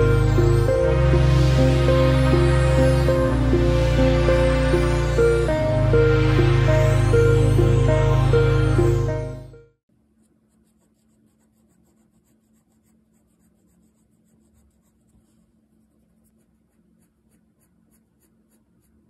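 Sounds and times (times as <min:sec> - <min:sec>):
pencil scratching on paper: 0:10.2 - 0:19.0.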